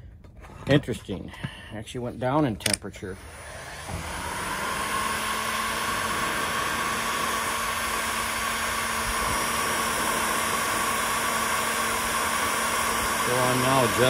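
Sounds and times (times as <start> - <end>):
heat gun blowing air: 3.1 - 14.0.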